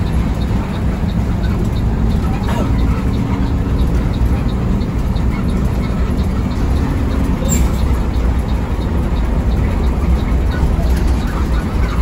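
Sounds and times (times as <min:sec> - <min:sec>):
bus engine rumble: 0:00.0 - 0:12.0
road noise: 0:00.0 - 0:12.0.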